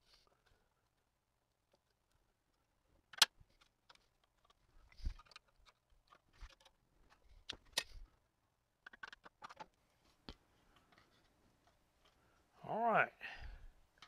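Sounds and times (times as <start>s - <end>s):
metallic clicks and knocks: 3.1s - 8.0s, 8.8s - 9.8s.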